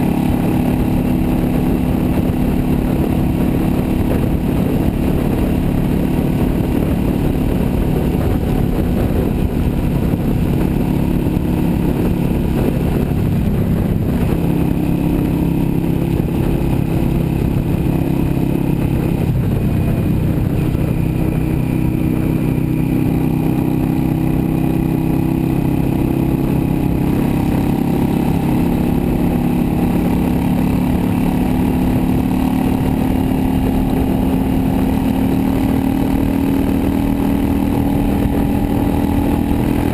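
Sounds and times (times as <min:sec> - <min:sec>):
motorcycle engine cruising: 0:00.0 - 0:39.9
wind noise: 0:00.0 - 0:39.9.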